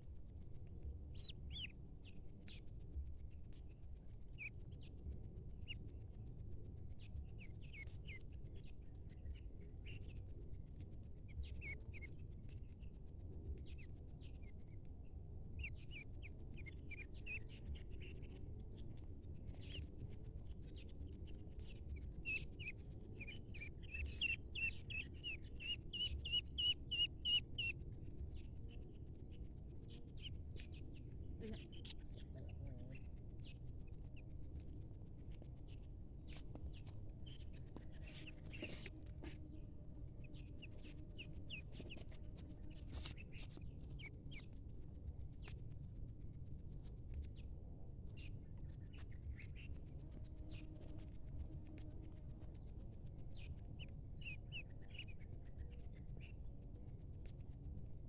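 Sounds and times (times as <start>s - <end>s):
ducklings peeping: 22.2s - 27.7s.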